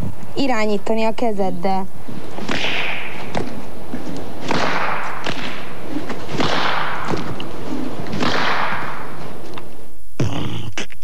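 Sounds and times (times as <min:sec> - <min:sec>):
cord whooshing through air: 0:02.0 - 0:09.8.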